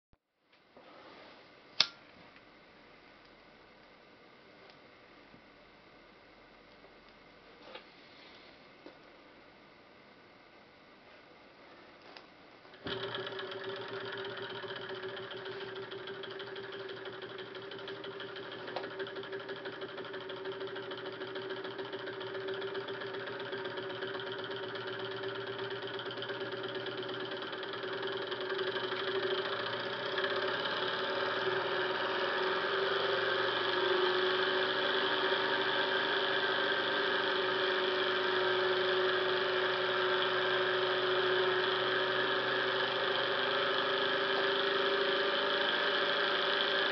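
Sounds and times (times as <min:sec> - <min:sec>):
flywheel turned by hand: 0:12.8 - 0:46.9
stirling engine whirring: 0:12.8 - 0:46.9.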